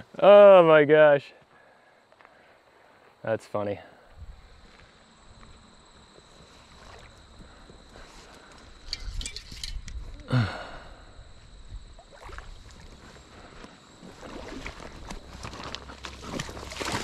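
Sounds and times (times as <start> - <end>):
fish splashing in water: 12.0 - 13.0, 16.0 - 17.0.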